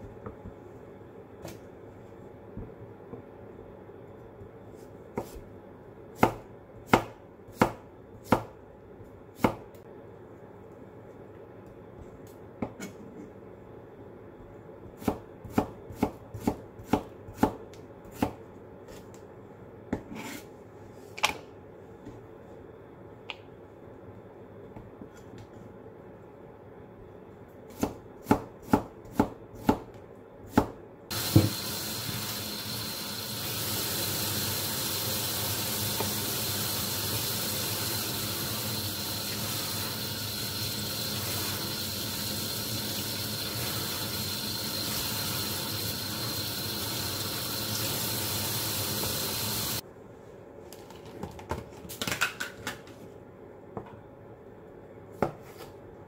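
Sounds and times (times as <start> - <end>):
knife slicing cucumber on board: 5.1 - 5.5, 15.0 - 19.0
water running into sink: 31.1 - 49.8.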